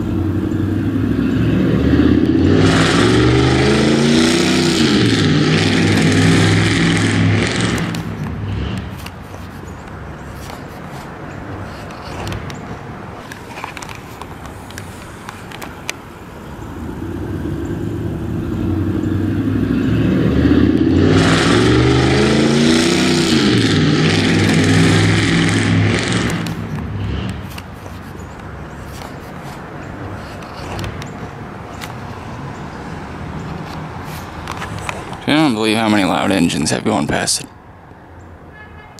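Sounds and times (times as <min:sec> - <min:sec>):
loud vehicle engine passing: 0:00.0 - 0:10.2, 0:15.6 - 0:35.7
distant traffic hum: 0:00.0 - 0:38.9.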